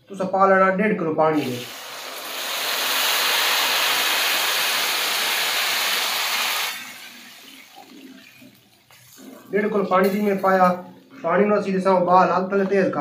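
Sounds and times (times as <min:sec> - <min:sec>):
mixture bubbling: 0:01.3 - 0:11.2
water pouring and sizzling: 0:01.4 - 0:11.2.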